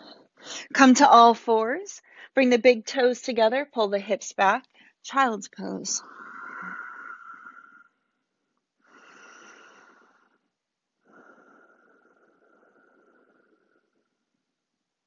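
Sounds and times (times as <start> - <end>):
person breathing slowly: 6.0 - 8.0, 8.8 - 14.3.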